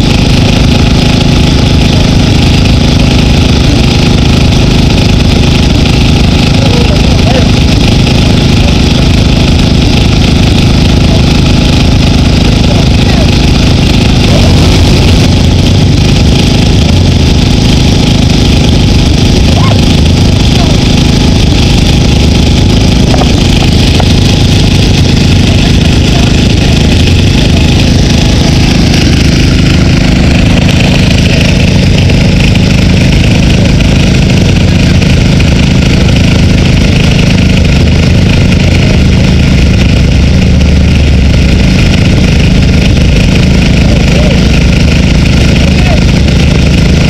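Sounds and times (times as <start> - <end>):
engine running steadily: 0.0 - 47.0.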